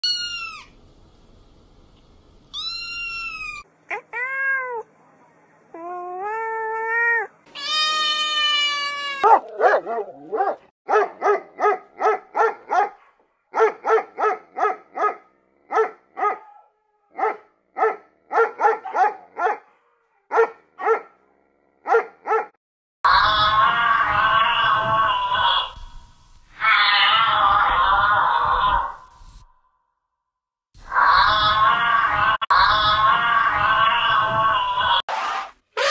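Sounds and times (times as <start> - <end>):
cat meowing: 2.5 - 4.9, 5.8 - 9.5
dog barking: 9.2 - 21.2, 21.8 - 22.6.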